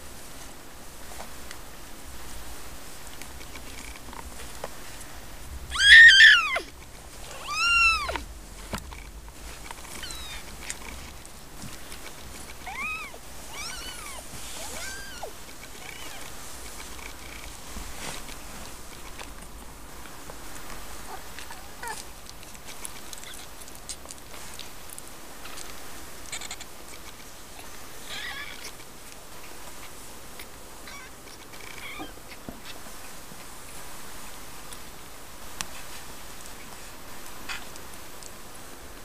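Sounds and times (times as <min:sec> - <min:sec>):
cats mewing: 0:05.7 - 0:08.3, 0:09.9 - 0:10.5, 0:12.6 - 0:16.4, 0:23.1 - 0:23.6, 0:26.3 - 0:26.7, 0:28.0 - 0:28.8, 0:30.8 - 0:32.4.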